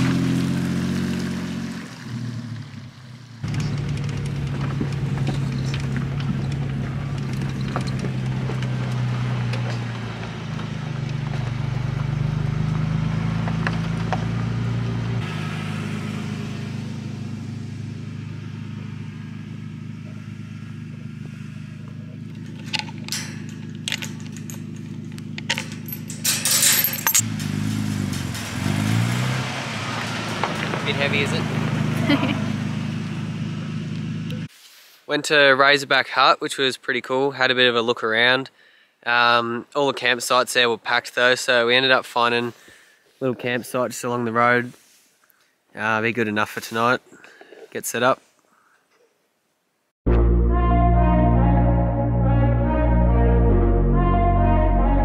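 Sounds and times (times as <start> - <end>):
car engine running: 0.0 - 34.5
chain rattling on metal gate: 22.2 - 29.3.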